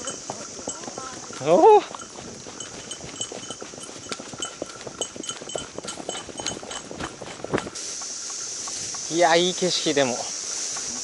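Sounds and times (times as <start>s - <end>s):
horse footfalls: 0.0s - 9.1s
light metallic jingling: 0.0s - 10.6s
steady hiss: 7.3s - 11.0s.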